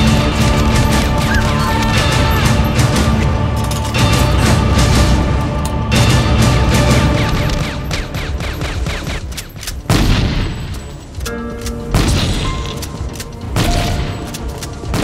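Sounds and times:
rapid gunshots: 0.0s - 11.2s, 11.8s - 15.0s
dramatic orchestral music: 0.0s - 15.0s
shotgun blasts: 11.9s - 12.8s.

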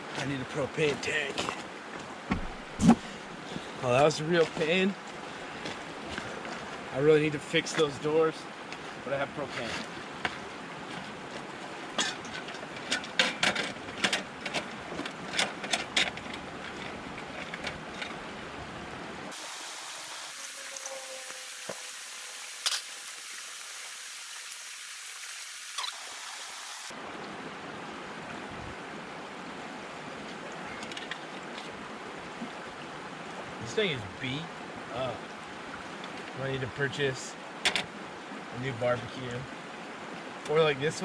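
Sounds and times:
river rushing: 0.0s - 36.7s
high hiss: 19.3s - 26.9s.

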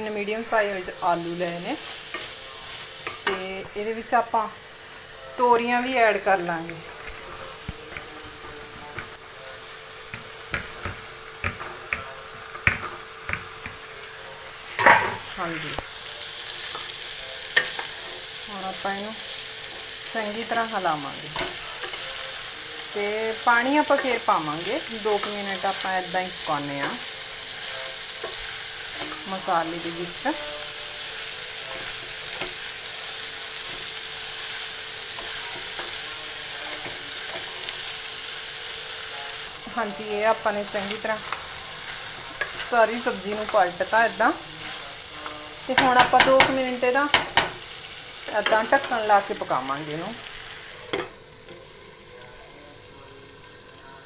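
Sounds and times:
vegetables sizzling in a pan: 0.0s - 54.0s
spatula clicking in frying pan: 10.1s - 13.8s, 45.7s - 47.6s.

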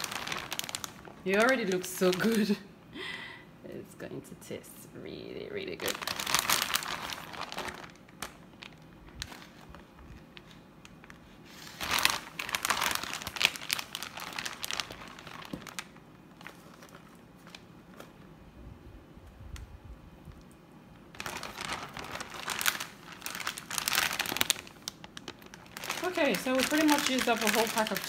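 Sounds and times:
plastic bag crinkling: 0.0s - 2.6s, 5.5s - 18.3s, 21.1s - 28.0s.

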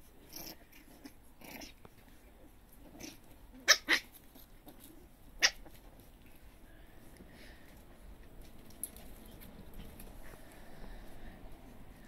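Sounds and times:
puppies yipping: 3.0s - 4.2s, 5.4s - 5.8s.

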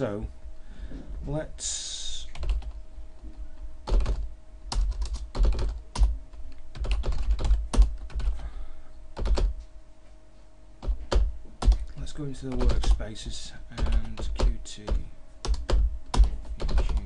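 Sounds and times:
faint steady hum: 0.0s - 17.0s
keyboard typing: 2.3s - 2.8s, 3.8s - 8.4s, 9.2s - 9.5s, 10.8s - 11.9s, 12.5s - 13.0s, 13.8s - 17.0s.

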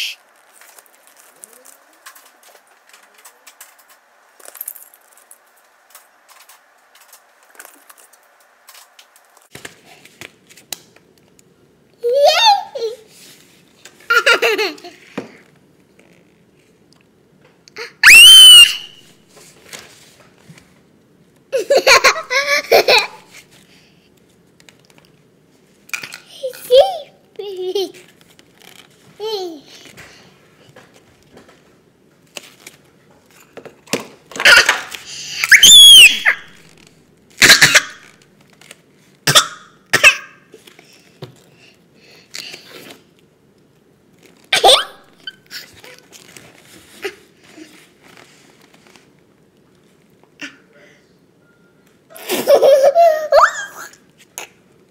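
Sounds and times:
toddler laughing and giggling: 14.1s - 15.2s, 21.5s - 23.4s, 26.3s - 28.1s, 29.2s - 29.8s, 52.1s - 54.0s
toddler shrieking: 17.8s - 18.9s, 35.4s - 36.6s.

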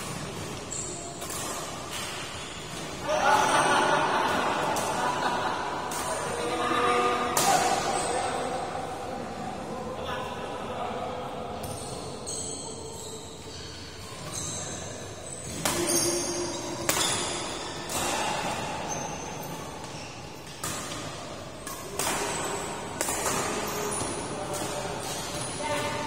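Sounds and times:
shoes squeaking on court floor: 0.0s - 3.0s, 11.6s - 26.0s
rackets hitting shuttlecock: 0.0s - 3.5s, 15.4s - 18.6s, 19.8s - 26.0s.

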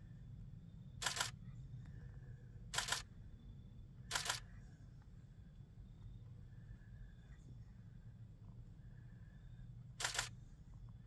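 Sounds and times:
low steady rumble: 0.0s - 11.0s
camera shutter clicking: 1.0s - 1.3s, 2.8s - 3.0s, 4.1s - 4.4s, 10.0s - 10.3s.

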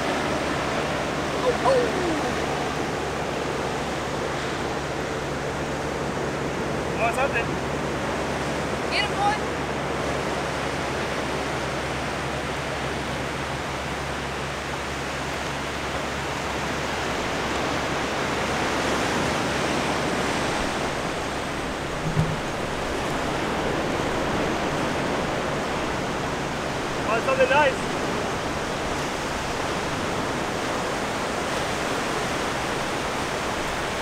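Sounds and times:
ocean surf breaking on beach: 0.0s - 34.0s
low bump: 20.9s - 23.5s.

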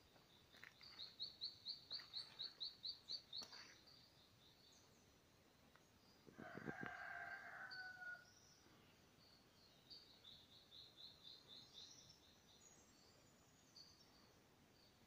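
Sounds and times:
small bird chirping: 0.0s - 6.8s
faint rooster crowing: 6.3s - 8.3s.

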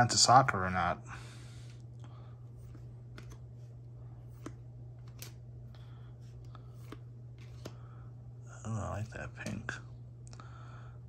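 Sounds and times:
cards flipped by hand: 2.6s - 7.9s.

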